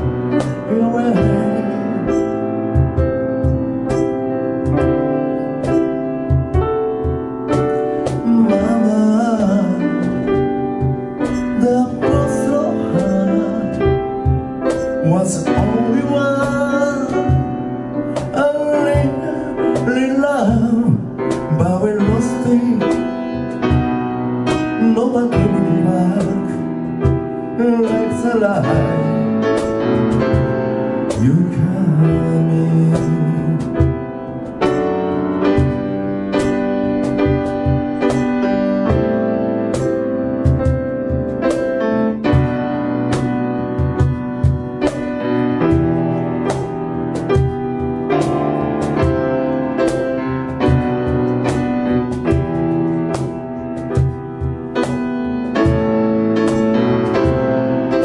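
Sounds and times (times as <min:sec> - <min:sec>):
piano chords: 0:00.0 - 0:58.0
man singing: 0:00.3 - 0:02.4, 0:08.1 - 0:10.6, 0:11.2 - 0:14.1, 0:14.7 - 0:23.2, 0:24.8 - 0:26.7, 0:27.5 - 0:29.7, 0:31.1 - 0:34.2.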